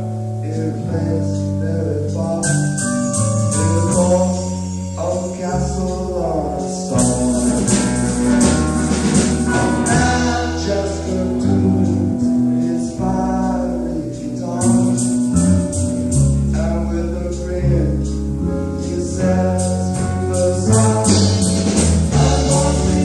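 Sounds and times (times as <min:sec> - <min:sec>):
man singing into microphone: 0:00.4 - 0:02.9, 0:03.5 - 0:08.1, 0:09.5 - 0:15.4, 0:16.5 - 0:23.0
live rock band playing: 0:02.2 - 0:23.0.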